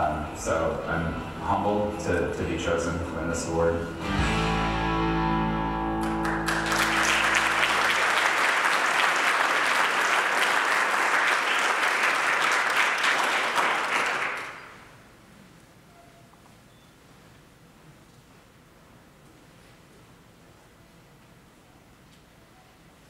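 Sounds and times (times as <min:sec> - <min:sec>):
sustained music chord: 0:03.8 - 0:07.8
audience applauding: 0:06.0 - 0:14.9.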